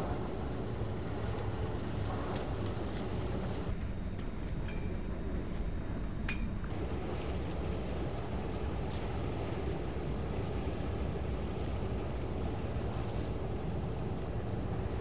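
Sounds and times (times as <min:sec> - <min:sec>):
boat engine rumbling: 0:00.0 - 0:03.8, 0:06.7 - 0:15.0.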